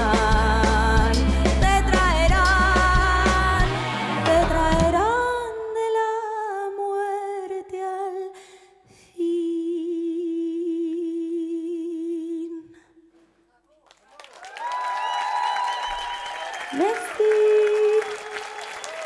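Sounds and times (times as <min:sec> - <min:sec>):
woman singing unaccompanied: 0:00.0 - 0:08.4, 0:09.2 - 0:12.8, 0:16.7 - 0:18.4.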